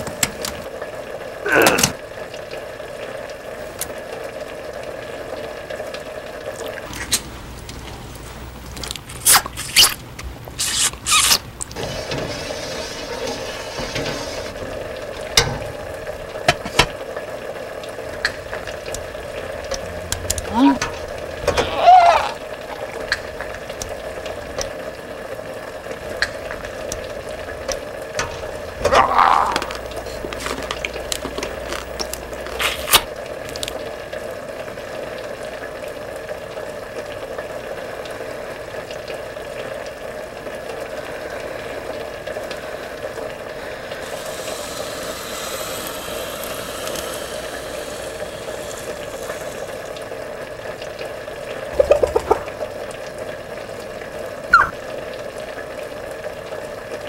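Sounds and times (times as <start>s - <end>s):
pot of liquid boiling: 0.0s - 57.0s
high hiss: 43.6s - 49.9s.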